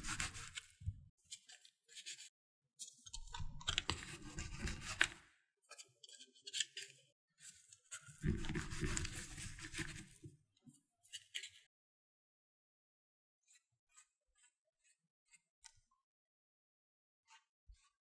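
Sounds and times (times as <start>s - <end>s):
scone dough scraping and crumbling: 8.2s - 10.2s.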